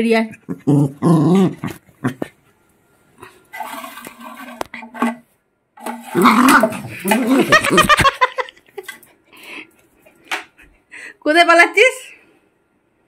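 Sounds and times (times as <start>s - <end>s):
small dog growling and barking: 0.4s - 2.4s, 5.9s - 8.0s.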